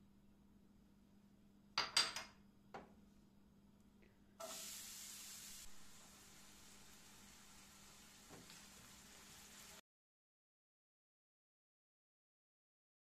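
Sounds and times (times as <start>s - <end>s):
onion sizzling in frying pan: 4.4s - 9.8s.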